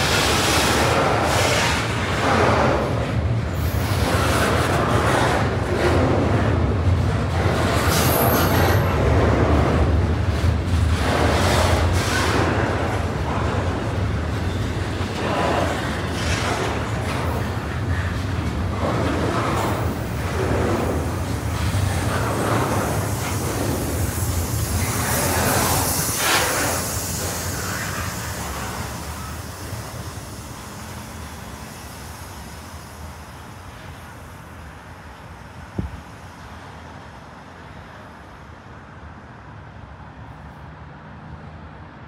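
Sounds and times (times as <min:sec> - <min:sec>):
train wheels clattering: 0:00.0 - 0:30.4.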